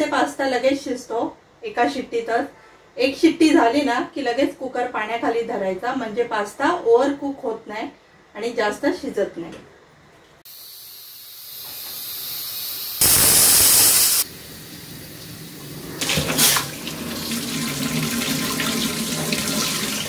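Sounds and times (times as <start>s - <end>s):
pressure cooker steam whistle: 10.5s - 14.3s
pressure cooker hissing: 10.5s - 16.8s.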